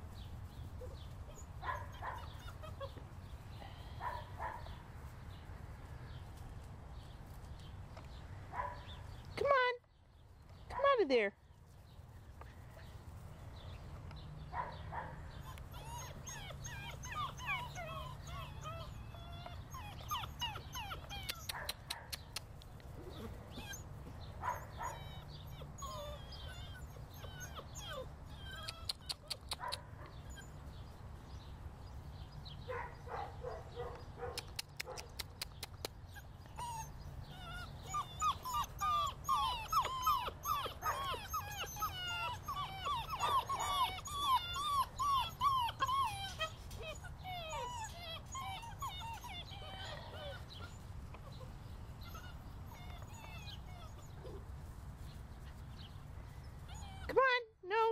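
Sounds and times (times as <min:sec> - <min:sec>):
puppies whimpering and yipping: 0:00.7 - 0:03.4, 0:15.3 - 0:21.7, 0:23.0 - 0:31.5, 0:35.6 - 0:57.2.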